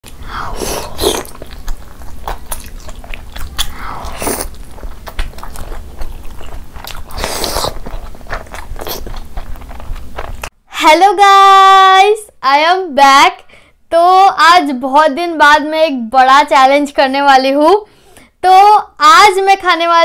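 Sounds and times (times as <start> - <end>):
wet mouth clicks: 0.1 - 9.8
close biting and chewing: 0.1 - 10.5.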